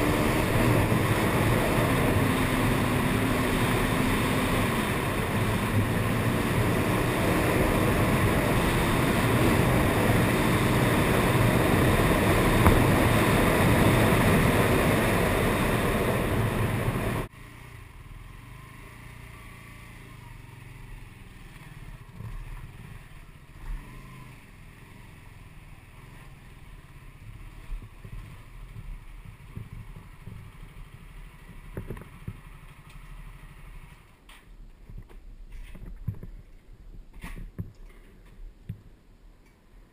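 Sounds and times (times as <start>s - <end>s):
motorcycle engine at speed: 0.0s - 34.3s
wind noise on microphone: 27.3s - 32.6s, 34.7s - 38.9s.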